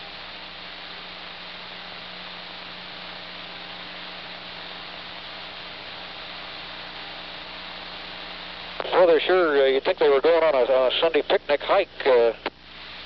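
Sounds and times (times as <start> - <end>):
low electrical hum: 0.0 - 13.0
radio hiss: 0.0 - 13.0.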